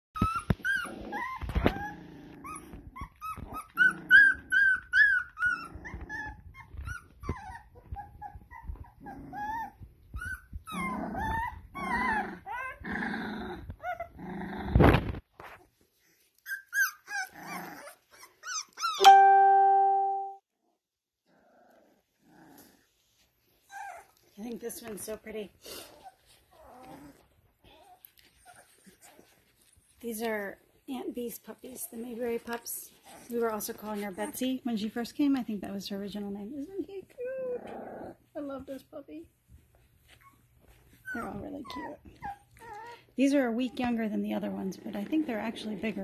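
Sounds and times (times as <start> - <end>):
puppies squealing and yipping: 0.2 - 12.8, 16.1 - 19.0, 23.5 - 24.2.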